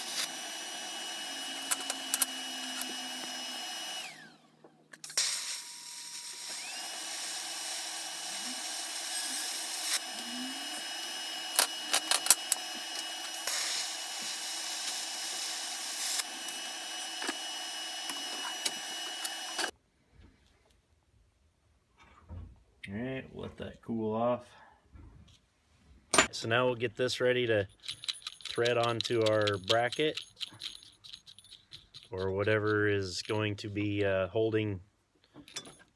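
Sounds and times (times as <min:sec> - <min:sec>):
welding arc hiss and hum: 0:08.2 - 0:19.7
welding arc crackles: 0:13.2 - 0:16.5.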